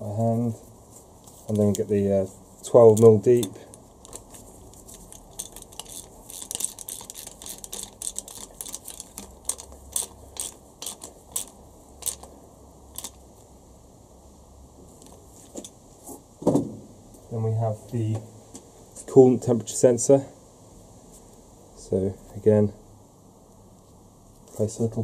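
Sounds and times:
ratchet wrench clicking: 0:02.9 - 0:12.3, 0:12.9 - 0:13.2.

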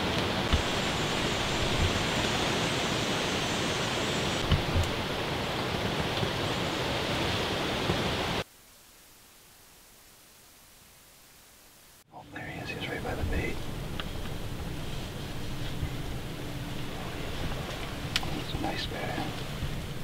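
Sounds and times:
steady rushing hiss: 0:00.0 - 0:20.0
soft low thumps: 0:04.4 - 0:05.2
faint ticks: 0:17.7 - 0:18.5.

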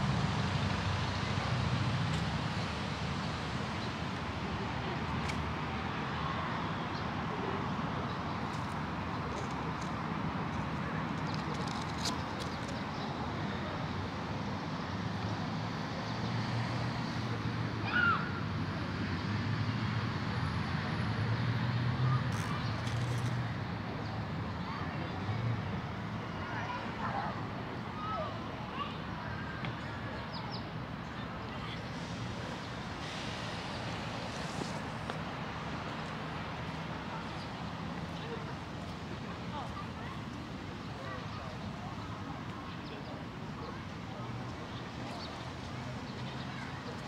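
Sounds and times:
road traffic hum: 0:00.0 - 0:47.0.

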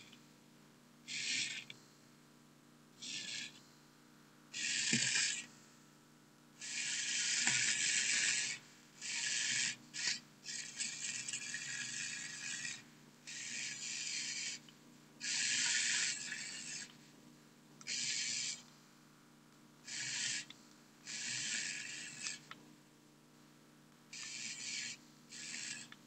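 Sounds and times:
toy robot motor whirring: 0:01.1 - 0:01.7, 0:03.0 - 0:03.6, 0:04.6 - 0:05.5, 0:06.6 - 0:14.6, 0:15.2 - 0:17.0, 0:17.8 - 0:18.6, 0:19.8 - 0:22.5, 0:24.1 - 0:26.0.

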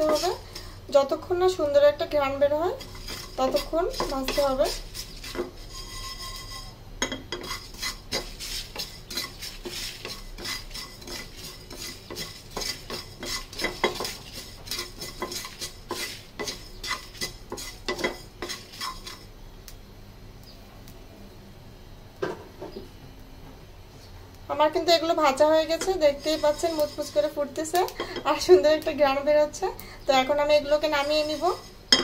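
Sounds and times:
spatula scraping a frying pan: 0:00.0 - 0:00.8, 0:02.3 - 0:19.4, 0:25.3 - 0:28.6, 0:30.2 - 0:32.0
faint sizzle: 0:00.0 - 0:32.0.

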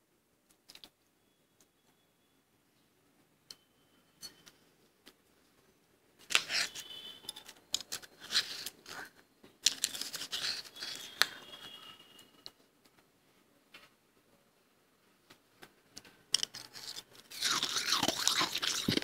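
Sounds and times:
spoon scraping frost in a bowl: 0:06.3 - 0:09.1, 0:09.7 - 0:11.9, 0:16.4 - 0:19.0.

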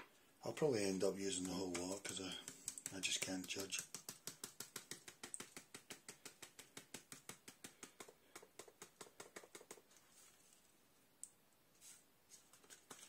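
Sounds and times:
tapping on a seasoning sachet: 0:01.0 - 0:09.8.

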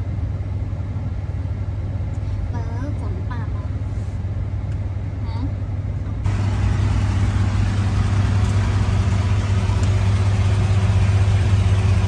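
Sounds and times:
ferry engine drone: 0:00.0 - 0:12.0.

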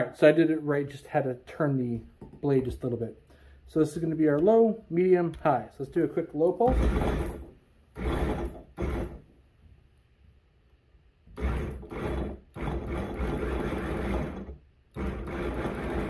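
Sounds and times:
electric food chopper motor: 0:06.7 - 0:09.2, 0:11.3 - 0:16.0.

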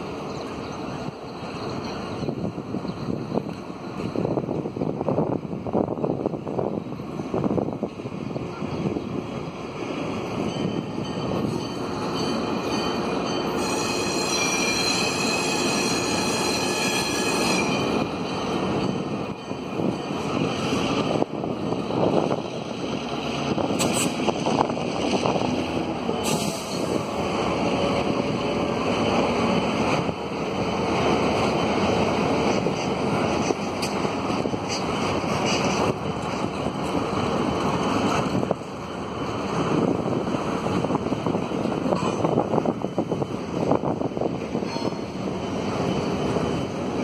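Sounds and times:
locomotive engine and wheel rumble: 0:00.0 - 0:47.0
high-pitched wheel squeal: 0:11.4 - 0:18.5
sharp clicks from wheels: 0:32.4 - 0:37.0.

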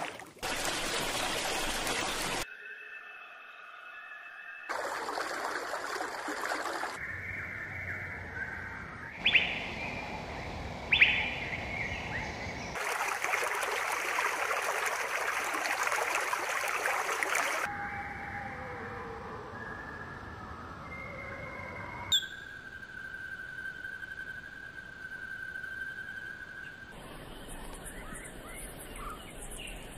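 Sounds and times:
sharp descending bird calls: 0:07.0 - 0:09.9, 0:10.9 - 0:12.1, 0:20.8 - 0:23.1
small birds chirping: 0:07.1 - 0:12.8.

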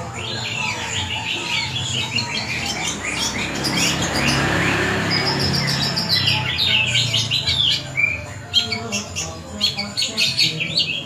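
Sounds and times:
bird singing chirps and gliding notes: 0:00.0 - 0:11.0.

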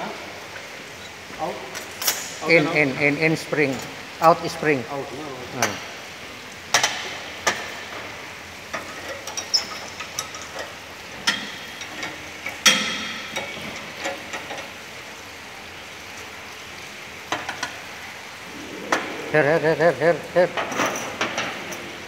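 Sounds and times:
metal tools clinking: 0:20.6 - 0:21.9.

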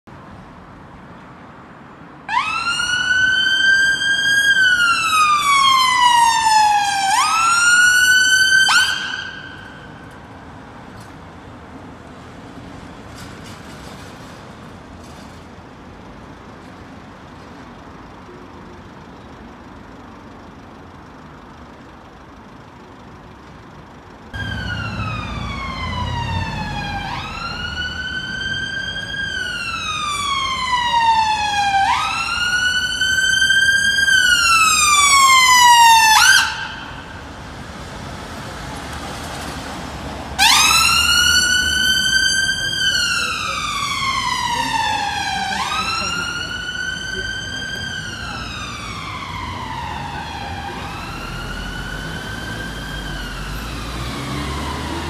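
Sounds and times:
low rumble of traffic: 0:00.1 - 0:55.0
low street background: 0:00.1 - 0:55.0
emergency vehicle siren wailing: 0:02.2 - 0:10.4, 0:24.3 - 0:55.0.

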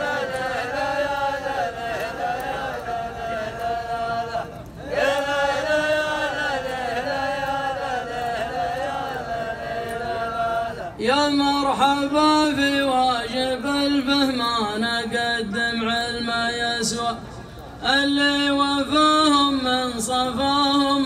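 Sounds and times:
men chanting in unison: 0:00.0 - 0:21.0.

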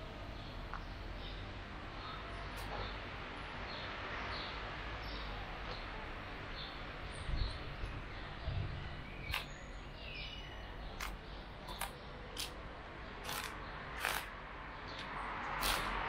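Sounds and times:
outdoor background hum: 0:00.0 - 0:16.0
bird chirps: 0:06.6 - 0:12.2.

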